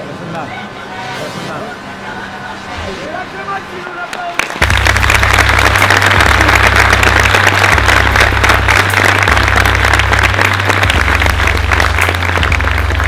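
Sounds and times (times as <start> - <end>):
crowd applauding: 4.1 - 13.0
low bass tone: 4.6 - 13.0.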